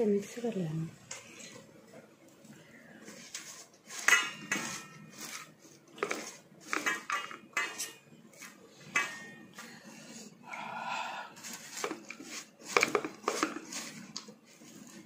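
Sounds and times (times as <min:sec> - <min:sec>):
puffed rice rustling and crunching: 0:11.4 - 0:15.0.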